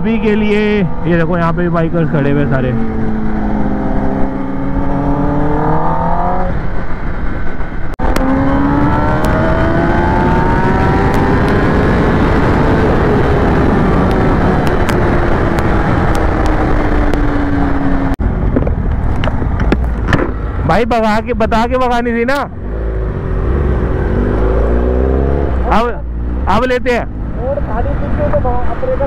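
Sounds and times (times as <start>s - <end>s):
motorcycle engine at high speed: 0.0s - 20.7s
wind rushing on microphone: 0.0s - 29.0s.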